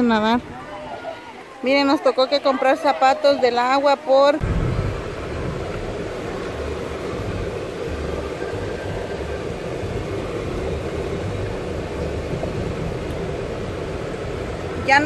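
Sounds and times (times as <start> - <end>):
car engine and road noise: 4.4 - 15.0.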